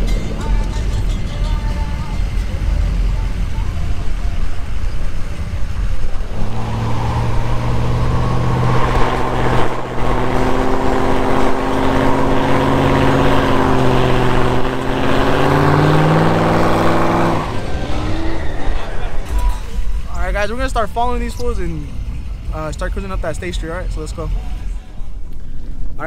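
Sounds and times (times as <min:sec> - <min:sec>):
spinning tyres hissing: 0:01.7 - 0:25.3
pickup truck engine revving: 0:02.2 - 0:20.4.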